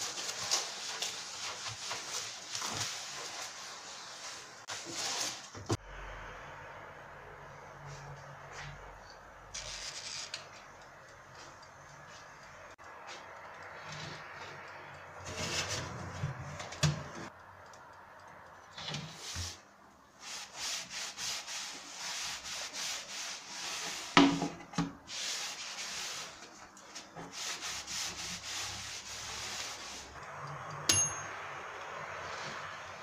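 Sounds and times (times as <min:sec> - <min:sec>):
cloth scrubbing wooden shelf: 0:20.2 - 0:30.2
short metallic ding: 0:30.9 - 0:31.4.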